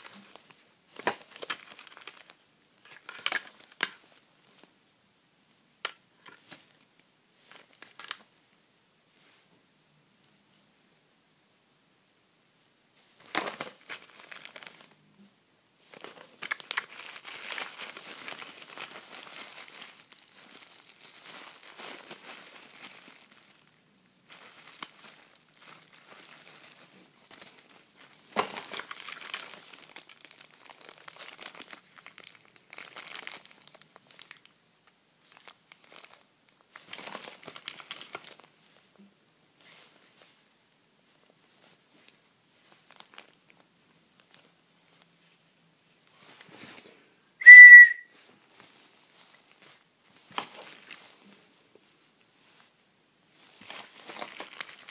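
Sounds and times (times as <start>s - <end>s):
plastic bags crinkling: 0.0s - 4.7s, 7.4s - 8.4s, 13.2s - 15.0s, 15.8s - 34.6s, 35.2s - 38.6s, 42.0s - 44.5s, 48.6s - 51.4s, 53.4s - 54.9s.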